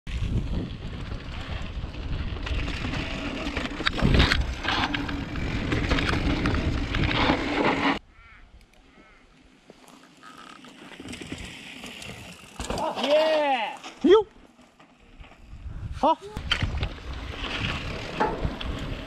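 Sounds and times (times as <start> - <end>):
wind buffeting microphone: 0.1 - 7.6, 15.4 - 19.0
tyres running over dirt: 0.1 - 8.0, 9.6 - 15.6, 16.4 - 19.0
bike rattling and knocking: 0.2 - 8.0, 16.5 - 19.0.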